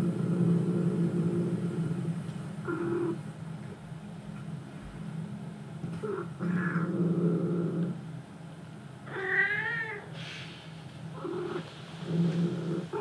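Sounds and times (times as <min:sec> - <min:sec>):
cat meowing: 0:09.1 - 0:10.1.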